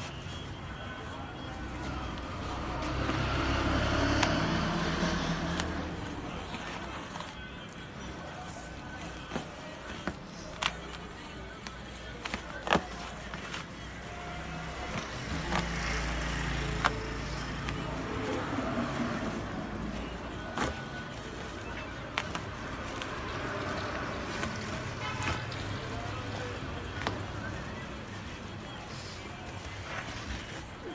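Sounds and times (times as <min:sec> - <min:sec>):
plastic sack crinkling: 0:04.2 - 0:30.9.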